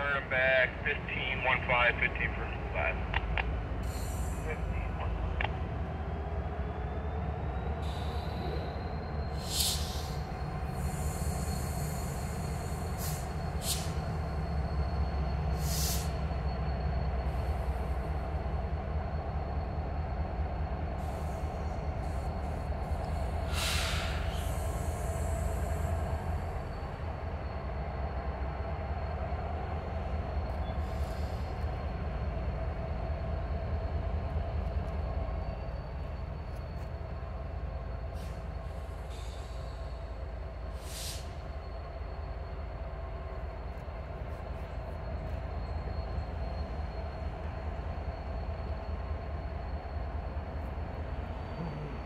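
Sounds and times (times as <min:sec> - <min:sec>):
diesel locomotive engine rumbling: 0:00.0 - 0:52.0.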